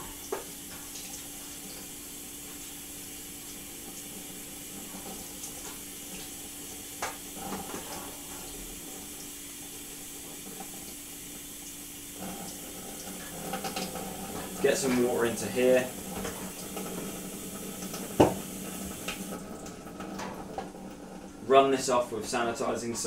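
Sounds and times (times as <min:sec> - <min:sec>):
tap running into metal sink: 0:17.7 - 0:20.7.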